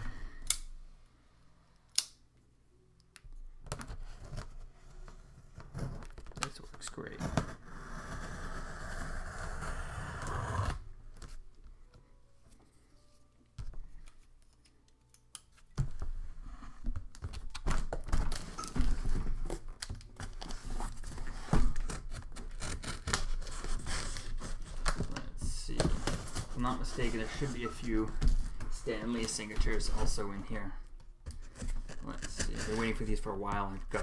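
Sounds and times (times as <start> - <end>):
knife slicing packing tape: 22.4 - 24.5.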